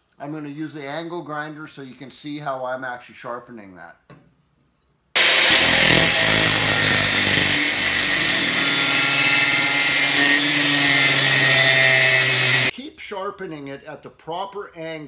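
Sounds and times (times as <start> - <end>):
angle grinder grinding steel: 5.2 - 12.7.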